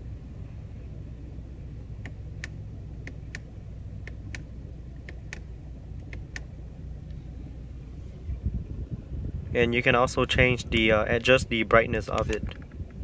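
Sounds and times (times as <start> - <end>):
steady low hum: 0.0 - 13.0
car control clicks: 2.0 - 6.5, 12.1 - 13.0.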